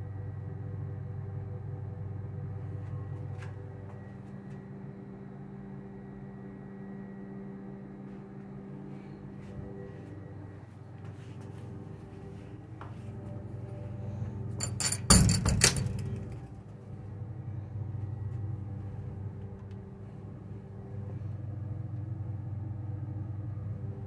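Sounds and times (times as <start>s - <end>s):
steady low hum: 0.0s - 24.0s
sharp knocks and clatter: 14.6s - 16.5s.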